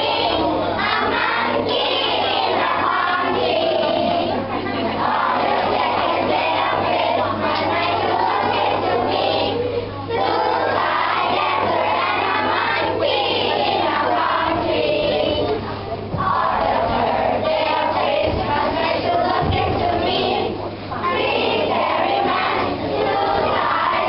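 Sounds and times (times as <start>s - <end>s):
children singing together: 0.0s - 24.0s
steady low hum: 0.0s - 24.0s.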